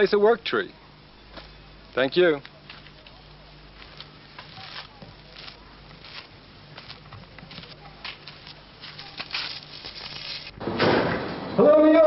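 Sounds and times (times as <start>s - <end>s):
steady low hum: 0.0s - 11.6s
footsteps on dirt path: 1.3s - 10.6s.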